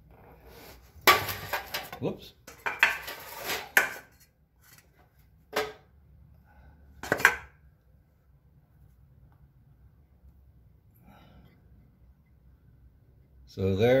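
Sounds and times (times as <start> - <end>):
faint low hum: 4.2 - 14.0.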